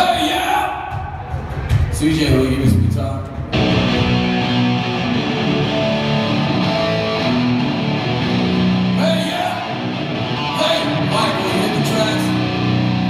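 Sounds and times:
drums: 0.0 - 13.0
distorted electric guitar: 3.4 - 13.0.

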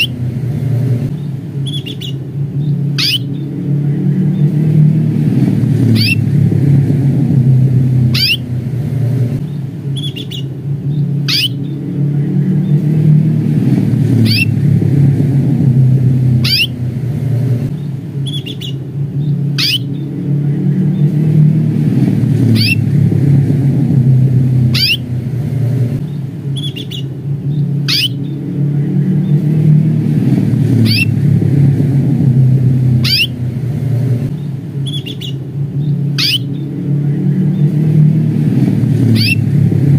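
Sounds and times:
canary call notes: 0.0 - 0.2, 1.2 - 4.8, 5.8 - 6.3, 7.9 - 8.7, 9.4 - 11.9, 14.1 - 14.6, 16.4 - 16.9, 18.2 - 20.2, 22.4 - 22.9, 24.5 - 25.3, 26.0 - 28.5, 30.7 - 31.2, 32.9 - 33.5, 34.4 - 36.8, 39.0 - 39.5
loud low rumble: 0.0 - 39.9.

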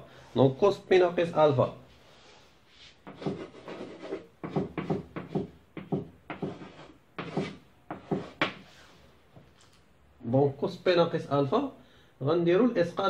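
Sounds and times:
chalk tapping and scraping on blackboard: 2.8 - 8.9.

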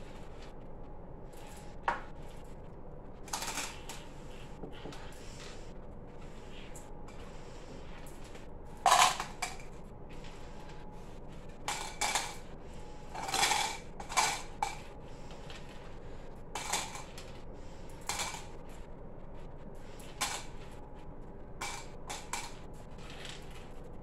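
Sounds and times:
hard pieces clattering into plastic cups: 3.3 - 3.9, 8.9 - 9.7, 11.7 - 12.5, 13.1 - 14.9, 16.6 - 17.3, 18.0 - 18.6, 20.0 - 20.6, 21.6 - 23.5.

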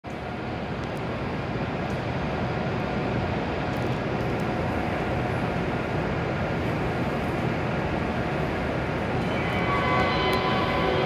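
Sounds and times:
train equipment humming: 0.1 - 11.0.

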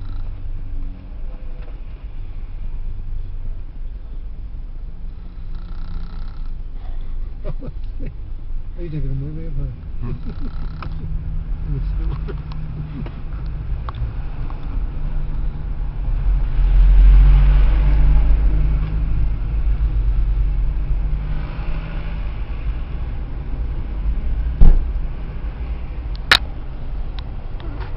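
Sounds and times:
car cabin rumble: 0.0 - 16.0, 23.1 - 27.9
woman snoring: 5.2 - 6.5, 10.2 - 10.8
sharp clicks: 10.4 - 11.0, 26.1 - 26.5.

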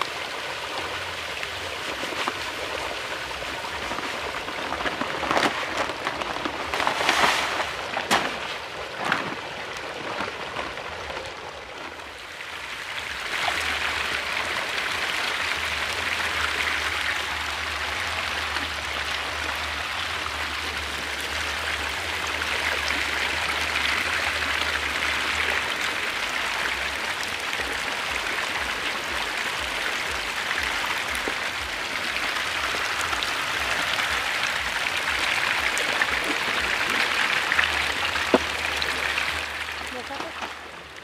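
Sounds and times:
fish splashing at water surface: 0.9 - 12.1.

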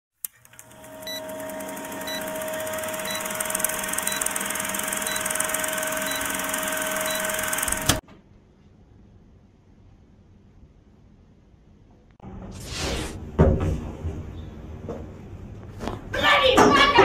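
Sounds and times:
film projector running: 0.2 - 8.0
short high beeps: 3.0 - 7.7.

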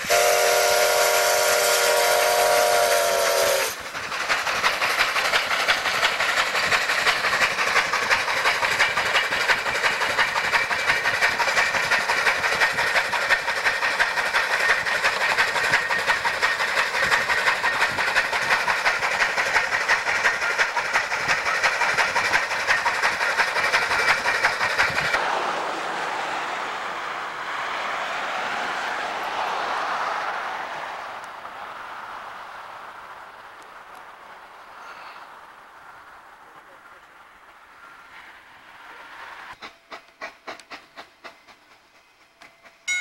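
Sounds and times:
steam whistle: 0.0 - 3.8
hiss of steam: 0.0 - 26.1, 34.4 - 37.0, 37.6 - 42.8
locomotive exhaust beat: 0.0 - 27.0, 39.5 - 43.0.

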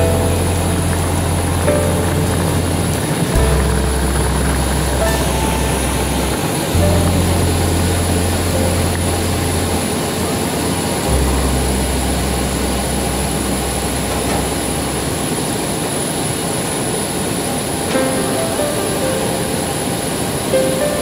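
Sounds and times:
background music with low bass: 0.0 - 15.3
jet engines whining: 1.0 - 11.2.

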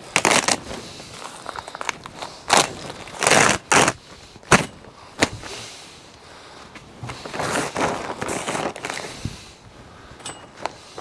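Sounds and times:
plastic sheet rustling and crackling: 0.0 - 5.8, 6.9 - 9.6.

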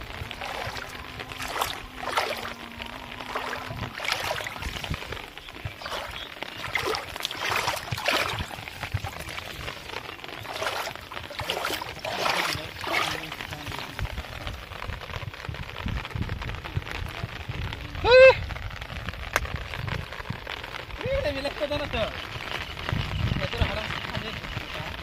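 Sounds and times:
water splashing and sloshing: 0.0 - 16.0.

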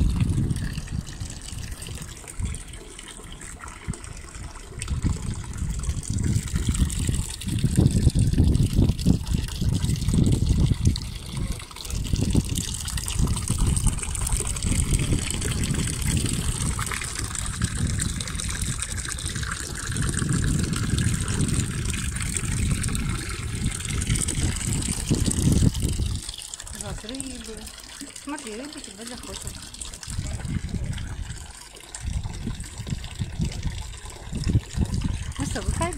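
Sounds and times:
low rumble in gusts: 0.0 - 2.8, 3.9 - 27.3, 29.5 - 35.9
water trickling in fountain: 0.0 - 35.9.

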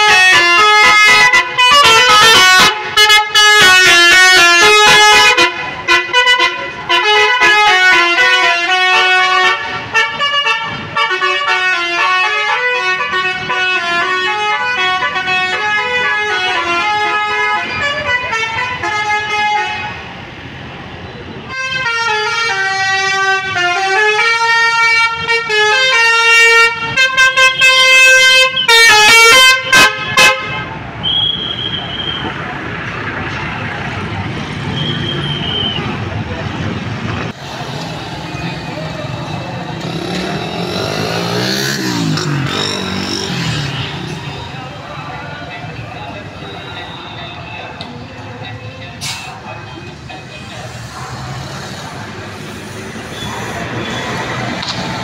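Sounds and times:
bus horns playing tunes: 0.0 - 20.1, 21.5 - 32.2.

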